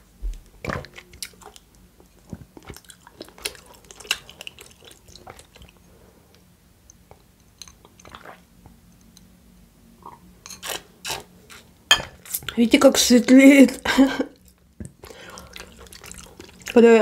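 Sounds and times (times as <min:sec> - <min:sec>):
chewing: 0:00.6 - 0:06.4, 0:10.1 - 0:12.6, 0:14.4 - 0:16.8.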